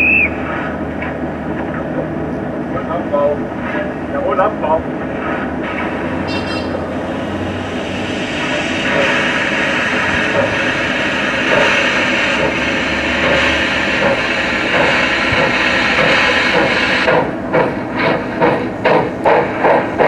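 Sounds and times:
steam locomotive chuffing: 0.0 - 20.0
steam hiss: 5.2 - 20.0.

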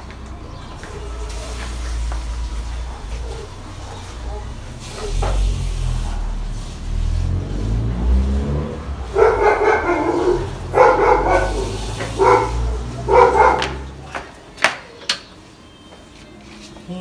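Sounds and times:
dog barking: 2.7 - 5.2, 9.0 - 14.0.

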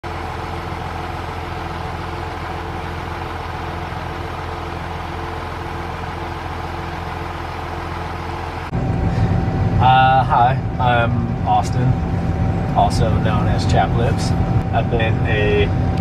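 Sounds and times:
diesel engine droning: 0.0 - 16.0.

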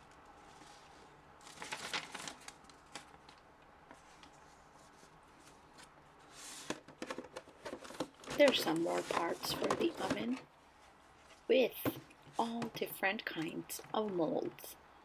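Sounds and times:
paper rustling: 0.0 - 11.5
hands rummaging in cardboard box: 6.4 - 10.4.

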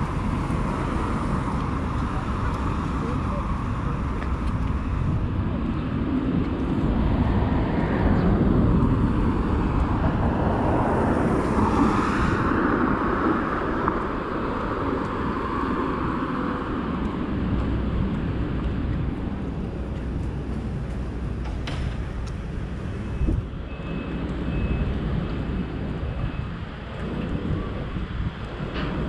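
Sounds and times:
passing cars rushing: 0.0 - 29.0.

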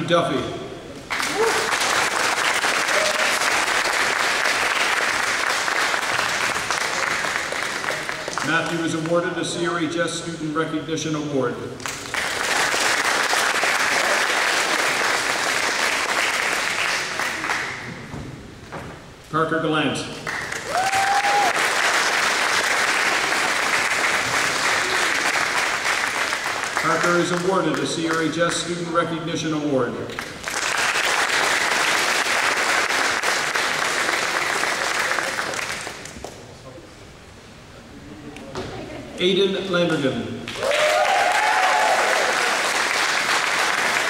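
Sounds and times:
audience applauding: 1.1 - 8.8, 11.9 - 17.9, 20.3 - 28.3, 30.2 - 36.4, 40.5 - 44.0.

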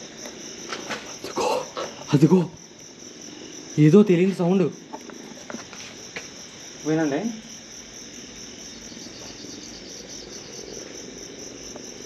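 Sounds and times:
crickets trilling: 0.0 - 12.0.

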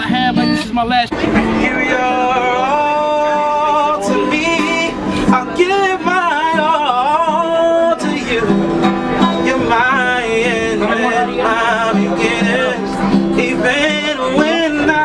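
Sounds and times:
strummed acoustic guitar: 0.0 - 15.0
person singing long notes: 1.2 - 8.6.

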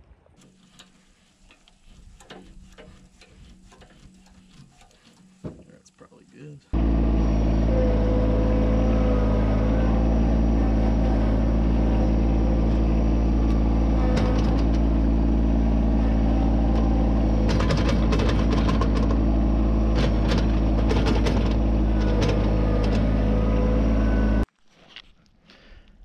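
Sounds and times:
tractor diesel engine running: 0.4 - 24.5
clicks and knocks: 17.4 - 19.2.

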